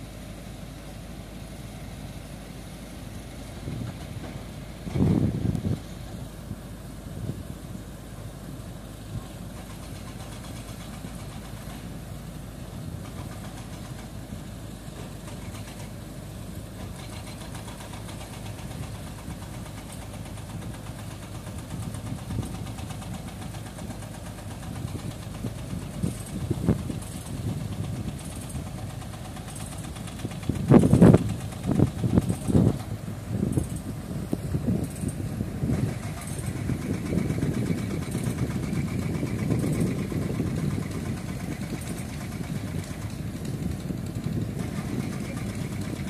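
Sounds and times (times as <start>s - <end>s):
diesel engine idling: 0.0s - 46.0s.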